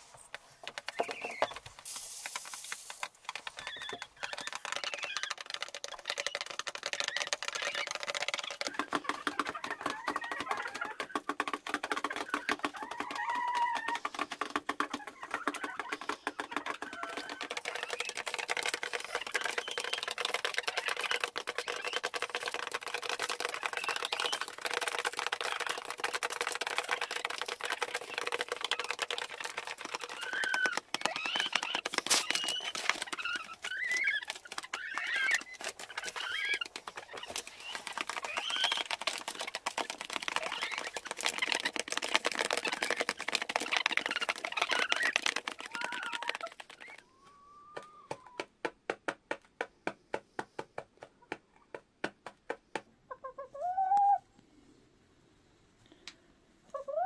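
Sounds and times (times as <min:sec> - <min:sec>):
hens pecking on metal tray: 0:00.0 - 0:47.0
hens clucking: 0:02.8 - 0:47.0, 0:53.0 - 0:54.2.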